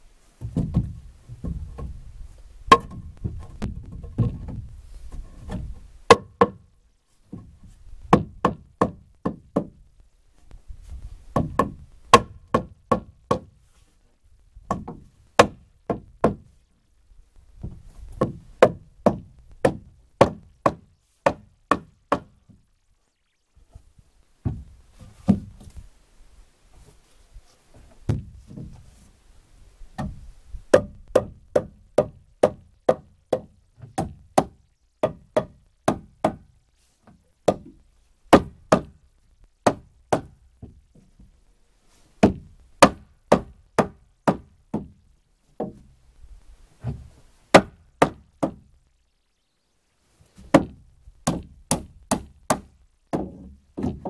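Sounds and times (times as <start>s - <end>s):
hammer striking timber: 0.4s - 2.0s, 2.7s - 4.6s, 5.5s - 6.6s, 8.1s - 9.8s, 11.4s - 13.5s, 14.7s - 16.5s, 17.6s - 22.5s, 24.4s - 25.5s, 28.1s - 28.7s, 30.0s - 36.4s, 37.5s - 37.7s, 38.3s - 39.0s, 39.6s - 40.4s, 42.2s - 45.0s, 46.9s - 48.7s, 50.5s - 54.0s.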